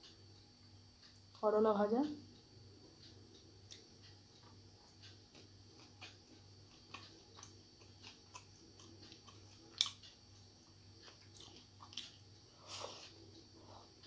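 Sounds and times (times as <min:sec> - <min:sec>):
fingers mixing rice on a plate: 0:03.4 - 0:12.2.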